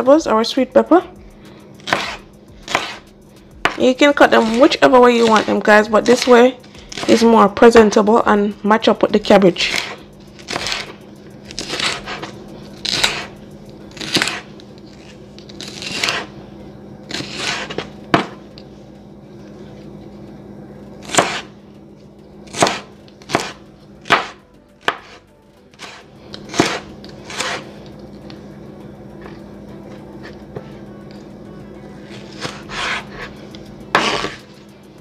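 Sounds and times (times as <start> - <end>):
knife slicing pepper: 1.8 - 7.3, 9.6 - 16.4, 17.1 - 18.4, 21.0 - 21.5, 22.5 - 27.8, 32.1 - 33.4, 34.0 - 34.6.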